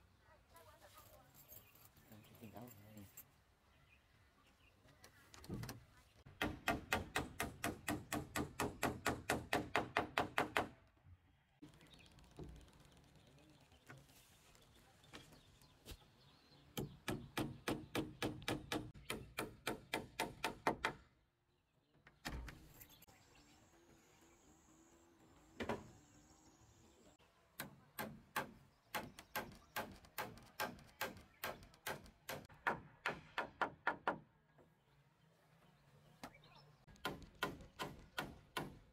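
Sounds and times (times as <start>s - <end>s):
hammer driving nails into wood: 27.6s - 34.2s, 37.0s - 38.8s.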